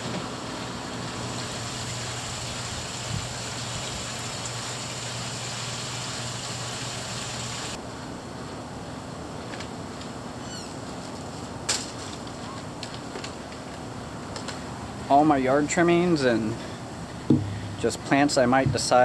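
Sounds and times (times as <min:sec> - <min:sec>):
water rushing into pond: 0:00.7 - 0:07.8
low steady hum: 0:13.5 - 0:19.0.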